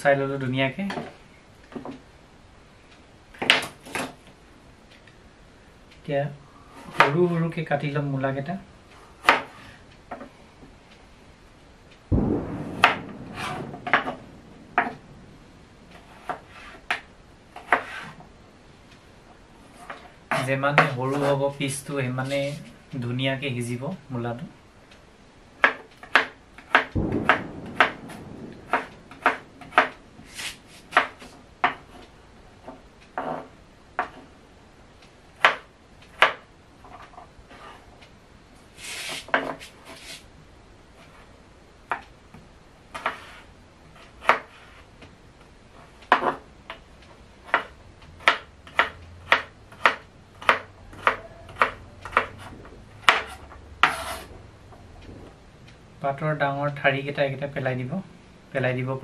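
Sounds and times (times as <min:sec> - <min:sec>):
knife chopping on wooden board: 0:09.2 - 0:10.2, 0:16.0 - 0:18.2, 0:25.6 - 0:28.0, 0:28.7 - 0:29.9, 0:30.9 - 0:31.9, 0:35.4 - 0:36.4, 0:43.0 - 0:43.4, 0:44.2 - 0:44.7, 0:46.1 - 0:46.4, 0:47.4 - 0:54.2
blade scraping across board: 0:16.0 - 0:17.0, 0:17.6 - 0:18.2, 0:29.7 - 0:32.1, 0:38.8 - 0:40.2, 0:42.9 - 0:44.9, 0:51.0 - 0:54.3.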